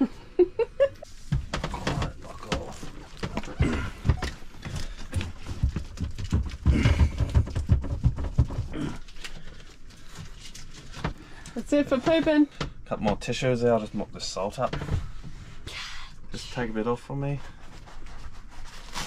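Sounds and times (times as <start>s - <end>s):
hose knocking and dragging: 1.0s - 8.8s.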